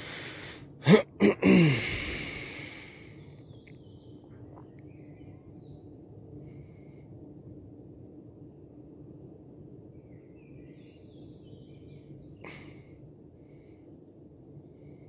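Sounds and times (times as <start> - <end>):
breathy hiss: 0.0 - 3.3.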